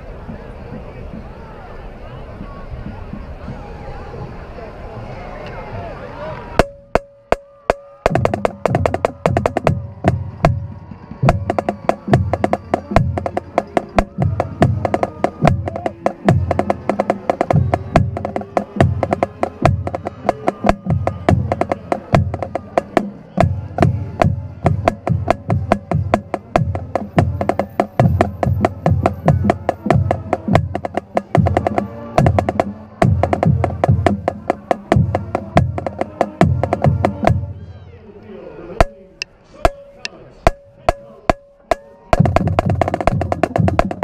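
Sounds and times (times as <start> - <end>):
bass drum beats: 6.6 - 37.6, 40.5 - 44.0.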